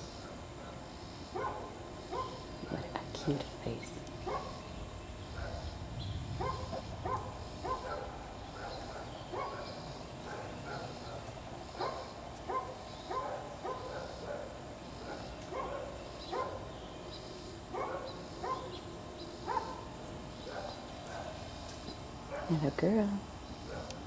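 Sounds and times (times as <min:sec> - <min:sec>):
dogs barking: 0:00.0 - 0:03.0, 0:04.2 - 0:16.7, 0:17.5 - 0:22.6, 0:23.6 - 0:24.0.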